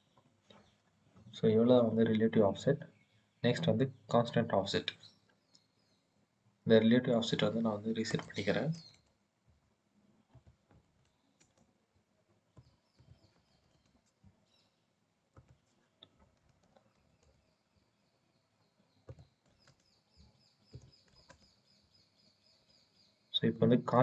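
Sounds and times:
computer mouse clicks: 0:10.4 - 0:11.7, 0:19.0 - 0:20.0, 0:20.7 - 0:21.6.

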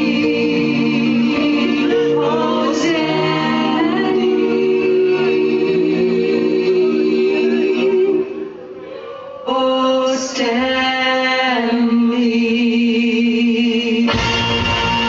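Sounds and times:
backing track: 0:14.1 - 0:15.0.

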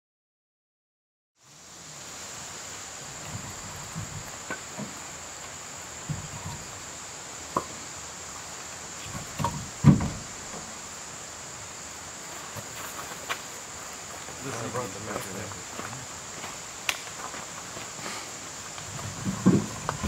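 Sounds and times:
insects droning: 0:01.4 - 0:20.0
gear knocks and thumps: 0:03.2 - 0:05.0, 0:06.0 - 0:06.8, 0:09.0 - 0:10.7, 0:18.8 - 0:20.0.

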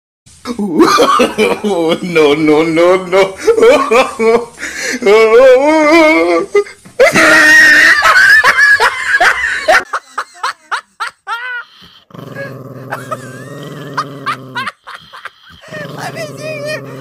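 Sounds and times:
loud laughter: 0:00.7 - 0:02.0, 0:07.0 - 0:11.9, 0:12.9 - 0:15.9
dog growling: 0:11.9 - 0:17.0.

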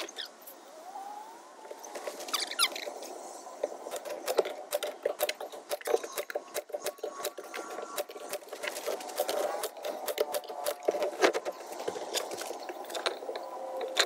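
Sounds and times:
nail gun clacking: 0:03.9 - 0:11.1.

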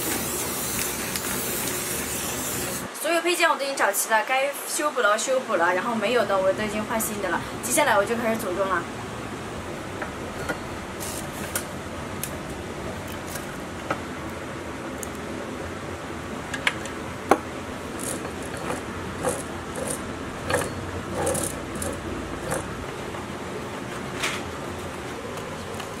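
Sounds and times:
steady hiss: 0:00.0 - 0:03.1
metal parts clinking on engine: 0:18.0 - 0:22.6.

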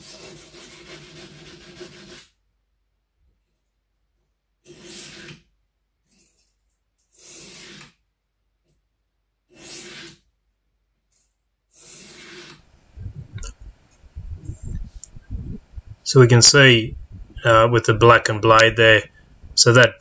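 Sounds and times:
knife grinding on sharpening stone: 0:04.6 - 0:05.5, 0:06.1 - 0:08.0, 0:09.5 - 0:10.2, 0:11.7 - 0:12.6
short scrapes: 0:04.6 - 0:08.0, 0:09.5 - 0:10.3, 0:11.7 - 0:13.8.

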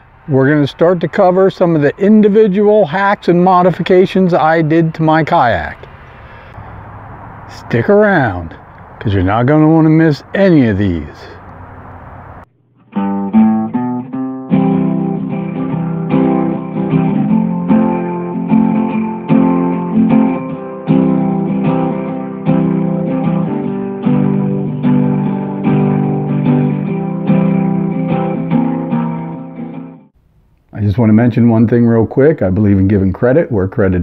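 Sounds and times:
guitar strummed chords: 0:11.4 - 0:30.1.

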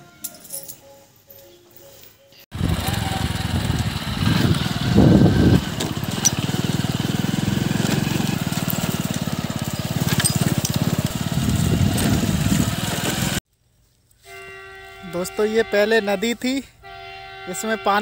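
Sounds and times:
small motorcycle engine running: 0:02.5 - 0:13.4.

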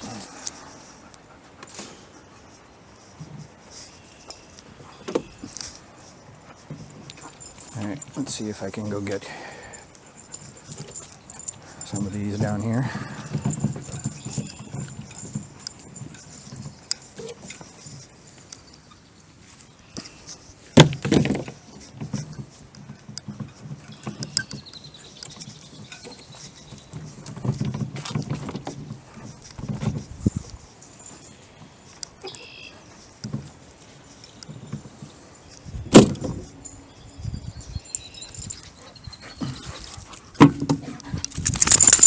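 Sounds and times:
garden cart rattling: 0:04.8 - 0:42.0
sticks rattling: 0:40.4 - 0:42.0.

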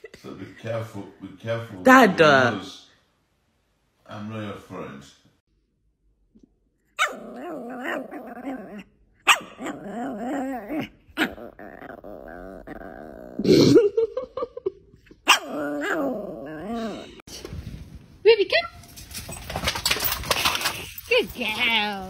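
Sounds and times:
puppy warbling and growling: 0:06.9 - 0:13.9, 0:15.2 - 0:17.2.

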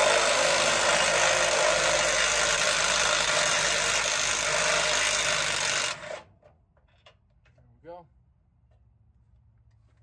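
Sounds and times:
power tool running: 0:00.0 - 0:06.3.

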